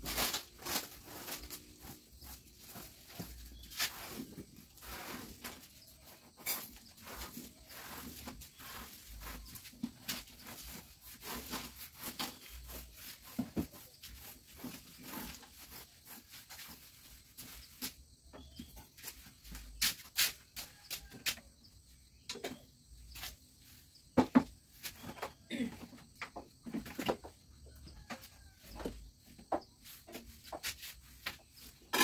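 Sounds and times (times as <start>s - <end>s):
broom sweeping concrete floor: 0.0s - 21.4s, 22.9s - 24.0s, 29.7s - 32.0s.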